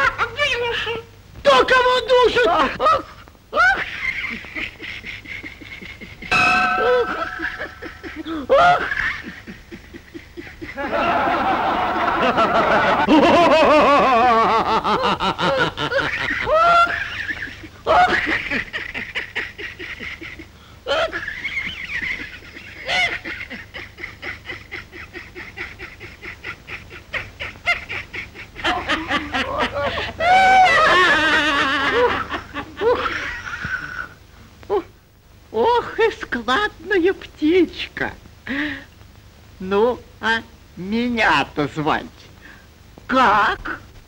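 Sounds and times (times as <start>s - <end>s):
people laughing: 2.4s - 34.2s.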